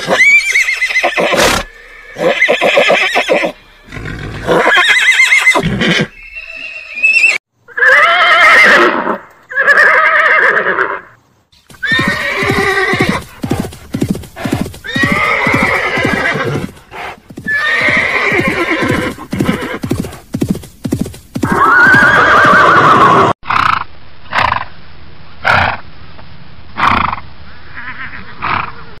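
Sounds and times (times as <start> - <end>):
horse whinnying: 0.0 - 11.1, 11.7 - 20.2, 21.4 - 23.6
short repeated horse sounds: 11.5 - 22.0
quick hoofbeats: 11.7 - 22.3.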